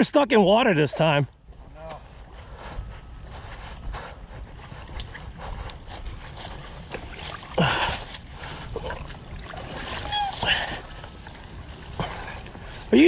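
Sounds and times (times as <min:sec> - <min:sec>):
water sloshing and splashing: 0:06.2 - 0:12.9.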